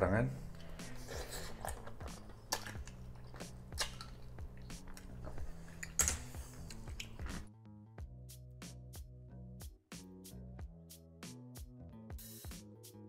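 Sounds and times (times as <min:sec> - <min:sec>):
close chewing and wet mouth sounds: 0:00.6 - 0:05.8.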